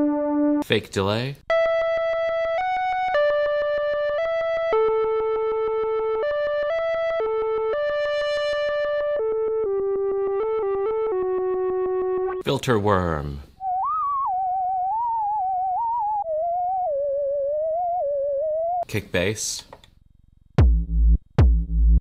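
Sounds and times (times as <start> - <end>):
pulsing synthesizer melody: 0.0 - 0.6, 1.5 - 12.4, 13.6 - 18.8.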